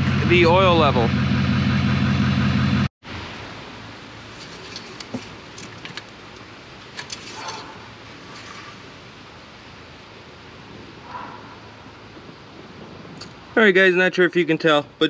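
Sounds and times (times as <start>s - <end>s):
towel rustling on dipstick: 4.2s - 9.2s.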